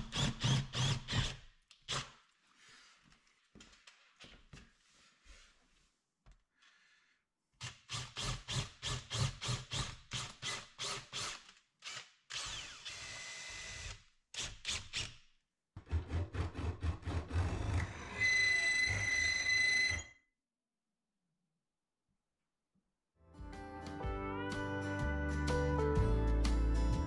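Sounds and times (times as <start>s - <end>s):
cordless drill driving screws: 7.6s - 15.2s.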